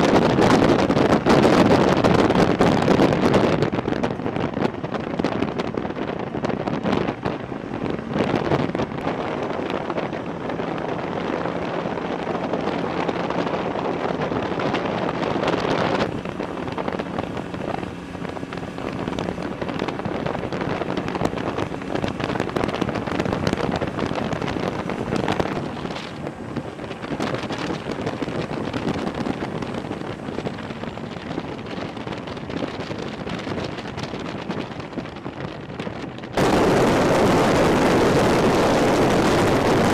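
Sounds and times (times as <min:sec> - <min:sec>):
wind buffeting microphone: 0:00.0 - 0:39.9
diesel engine running: 0:06.4 - 0:32.6.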